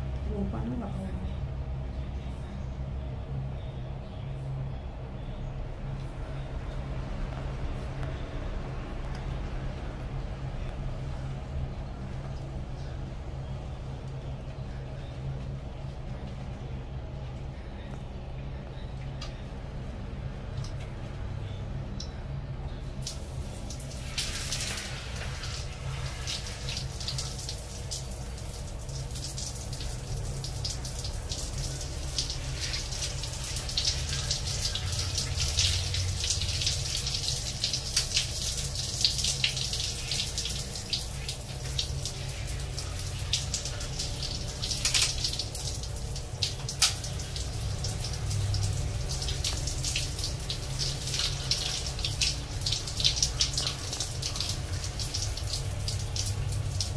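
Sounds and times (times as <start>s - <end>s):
shower water splashing: 22.9s - 56.9s.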